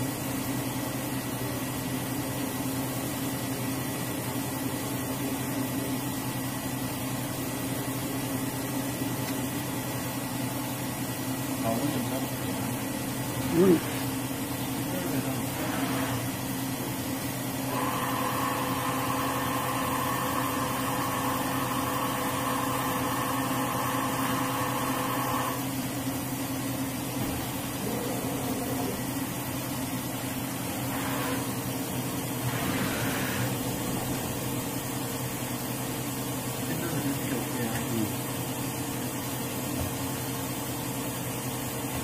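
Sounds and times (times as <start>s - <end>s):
machining center humming: 0.0s - 41.4s
high machine whine: 10.2s - 39.4s.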